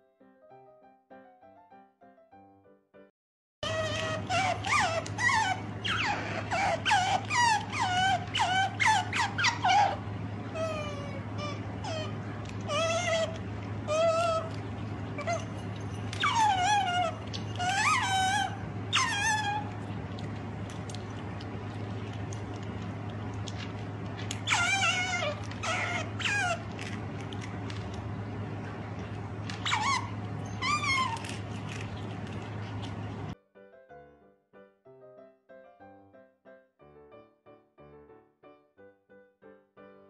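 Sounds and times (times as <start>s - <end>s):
low hum: 3.6s - 33.4s
otter squeaking: 3.6s - 33.4s.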